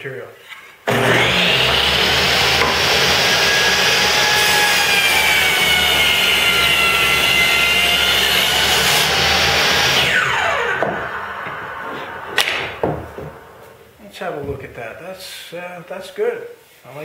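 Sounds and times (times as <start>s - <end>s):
saw blade spinning down: 0.9s - 13.9s
table saw cutting wood: 0.9s - 13.9s
sharp knock: 12.4s - 13.4s.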